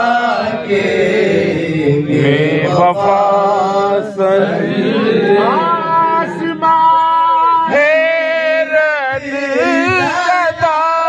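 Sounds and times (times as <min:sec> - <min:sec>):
man singing with vibrato: 0:00.0 - 0:11.0.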